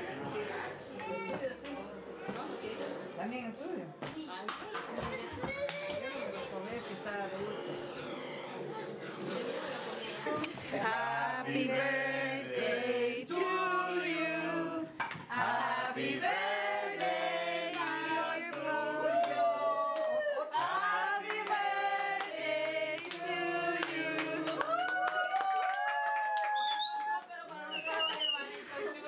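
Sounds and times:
group singing birthday song: 9.1s - 24.8s.

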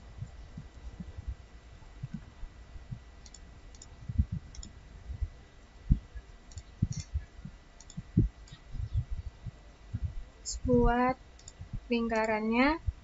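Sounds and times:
dull low thumps: 0.0s - 11.9s, 12.8s - 13.0s
computer mouse clicks: 3.2s - 3.9s, 4.5s - 4.8s, 6.5s - 7.1s, 7.8s - 8.6s, 11.4s - 12.4s.

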